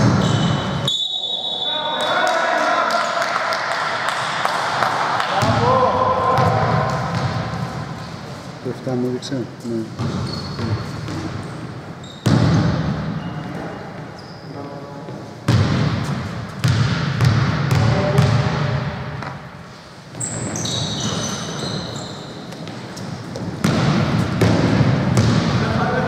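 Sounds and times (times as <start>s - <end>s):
shoe squeaks: 0.1s - 2.0s, 9.6s - 12.6s, 13.2s - 15.0s, 20.1s - 23.5s
players' voices: 1.2s - 11.5s, 24.5s - 26.0s
basketball bouncing on wooden floor: 10.0s - 11.4s, 12.2s - 12.9s, 15.5s - 18.6s, 22.6s - 25.6s.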